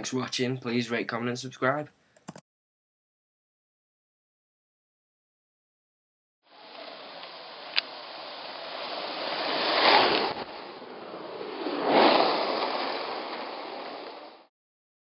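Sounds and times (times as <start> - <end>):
skateboard rolling on asphalt: 6.5 - 14.5.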